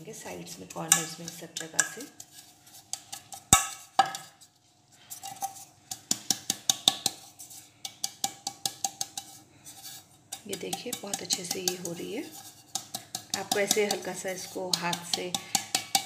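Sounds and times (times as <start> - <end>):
hands tapping metal cake mould: 0.8 - 2.1, 2.9 - 4.3, 5.8 - 7.2, 7.8 - 9.4, 10.3 - 16.0.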